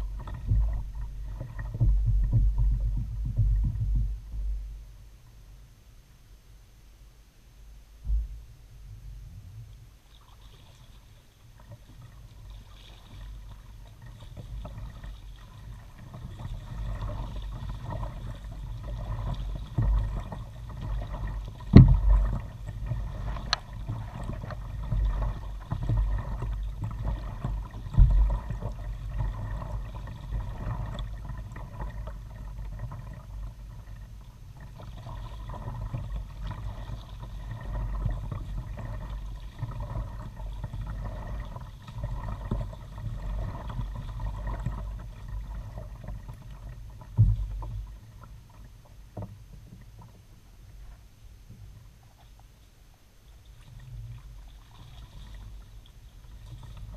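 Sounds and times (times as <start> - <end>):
low rumble: 0.0 - 10.1
paddle strokes swishing and dripping: 10.0 - 51.0, 51.8 - 56.9.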